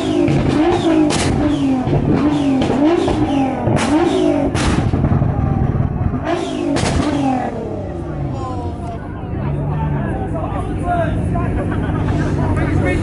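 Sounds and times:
exhaust backfire bangs: 0.0s - 8.2s
car engine revving: 0.0s - 13.0s.

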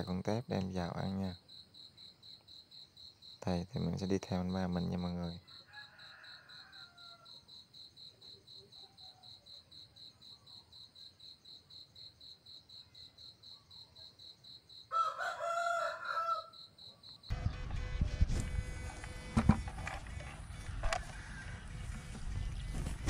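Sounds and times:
rooster crowing: 5.4s - 7.4s, 14.9s - 16.7s, 20.8s - 21.8s.

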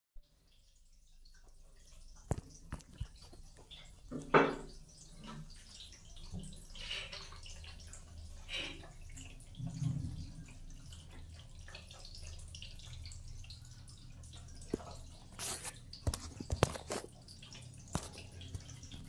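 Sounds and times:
water dripping and trickling: 0.2s - 19.0s.

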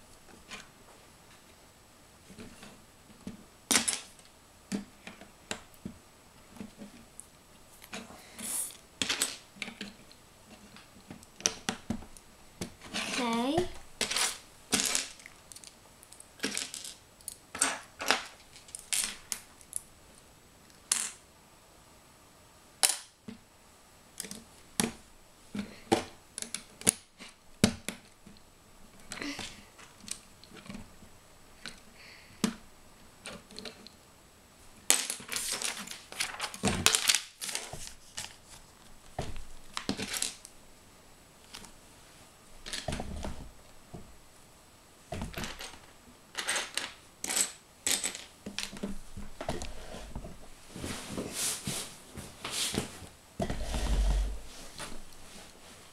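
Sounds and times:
plastic bricks clicking and clattering: 14.0s - 19.8s, 45.2s - 48.8s.

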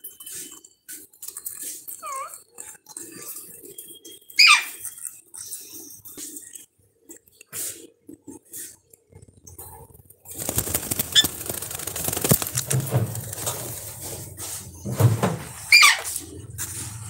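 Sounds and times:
parakeets calling: 4.4s - 4.8s, 10.4s - 13.4s
rustling with clicks: 9.2s - 17.0s.

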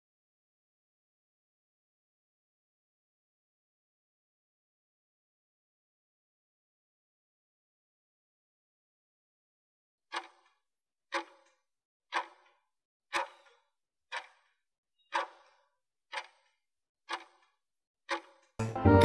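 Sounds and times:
timer ticking: 10.1s - 10.5s, 11.1s - 11.5s, 12.1s - 14.4s, 15.1s - 17.5s, 18.1s - 19.0s
loud music: 18.6s - 19.0s.

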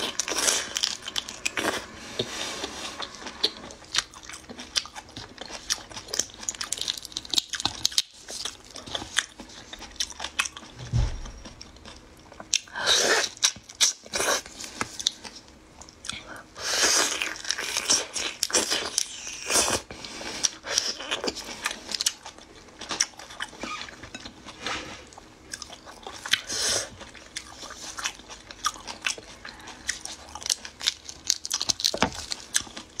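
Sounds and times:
crunching and chewing shrimp: 3.4s - 10.8s, 11.4s - 33.0s.

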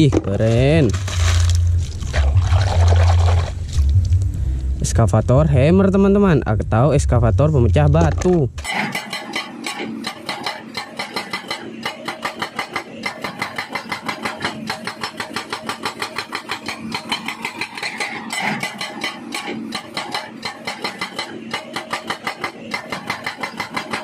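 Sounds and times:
hydraulic breaker pounding rock: 8.1s - 24.0s.

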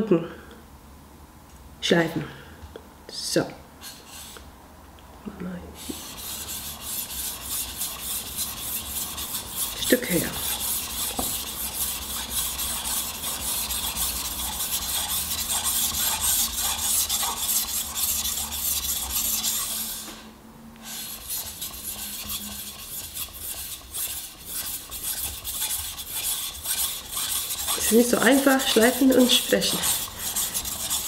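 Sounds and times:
knife rasping on whetstone: 5.8s - 20.2s, 20.8s - 31.0s.

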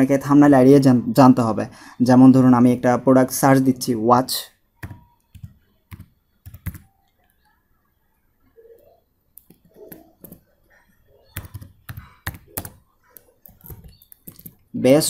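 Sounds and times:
keyboard typing: 4.8s - 7.6s, 8.5s - 14.8s.

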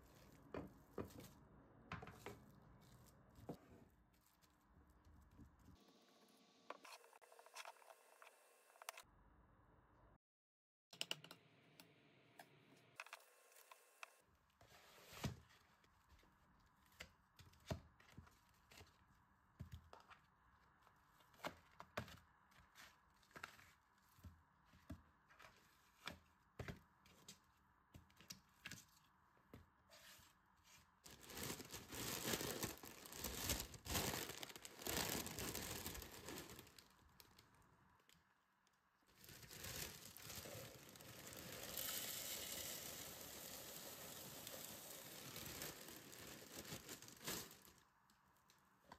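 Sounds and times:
plastic crinkling and tearing: 31.0s - 37.6s, 39.2s - 47.8s
cereal poured into plastic bowl: 39.6s - 47.7s.

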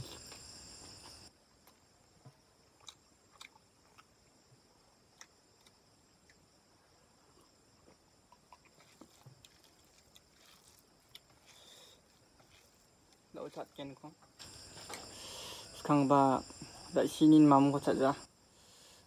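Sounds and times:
person eating and chewing: 0.0s - 1.8s, 2.7s - 4.2s, 7.4s - 13.2s.

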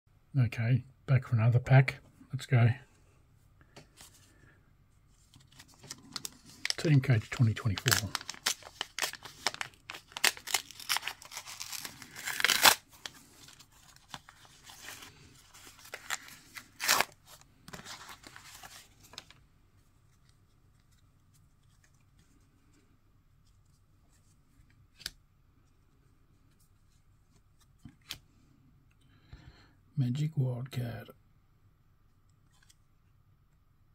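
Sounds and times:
wrapper tearing and crinkling: 5.4s - 19.3s.

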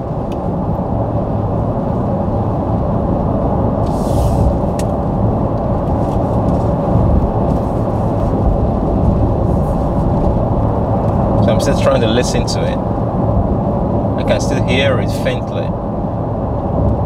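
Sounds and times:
wind and tyre noise in car cabin: 0.0s - 17.0s
brief hiss: 3.8s - 4.6s.

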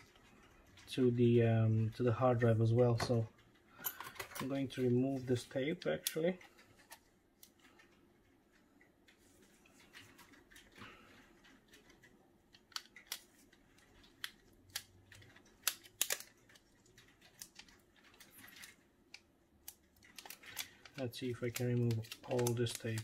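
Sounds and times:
tape crinkling: 5.1s - 23.0s.

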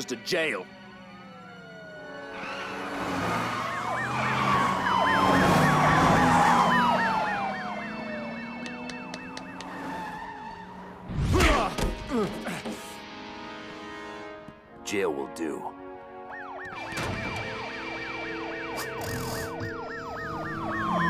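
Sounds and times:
police siren wailing: 0.4s - 11.1s, 16.0s - 21.0s
police siren yelping: 0.7s - 11.0s, 16.2s - 21.0s.

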